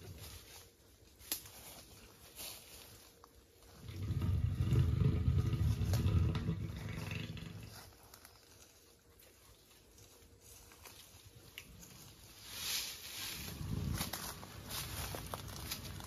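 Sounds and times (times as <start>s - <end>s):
elephant rumbling growl: 3.7s - 8.0s, 13.4s - 16.0s.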